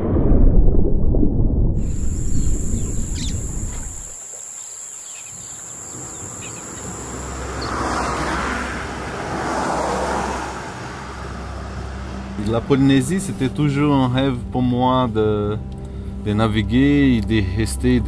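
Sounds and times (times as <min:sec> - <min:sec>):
heavy low rumble: 0:00.0 - 0:04.2
birds chirping: 0:01.8 - 0:09.0
high insect drone: 0:01.8 - 0:12.4.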